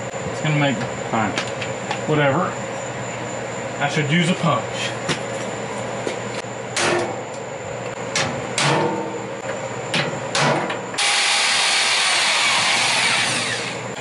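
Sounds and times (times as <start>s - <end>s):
hammer striking metal punch: 6.8s - 7.2s, 8.2s - 9.2s
electric drill drilling metal: 11.0s - 14.0s.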